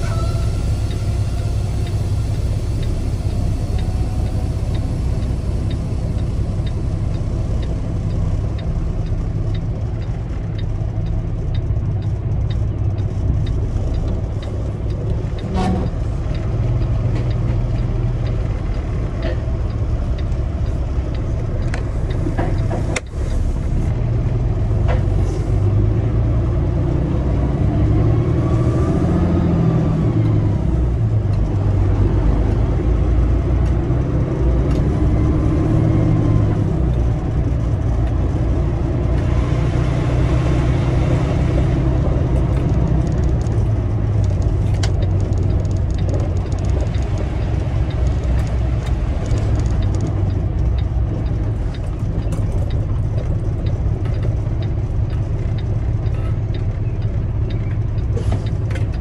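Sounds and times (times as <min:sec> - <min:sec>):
road noise: 0:00.0 - 0:59.0
truck diesel engine: 0:00.0 - 0:59.0
light clicks and rattles: 0:42.3 - 0:59.0.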